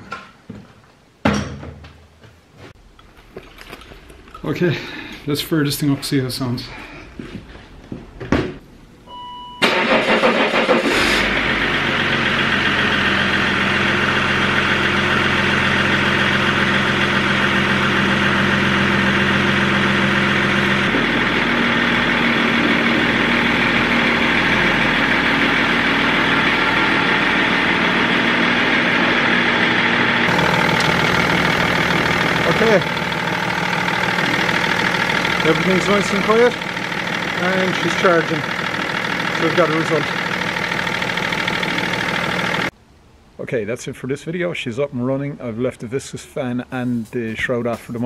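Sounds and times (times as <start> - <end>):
short beep: 9.1 - 9.7
diesel engine cranking and starting: 9.6 - 42.7
diesel engine idling: 9.6 - 42.7.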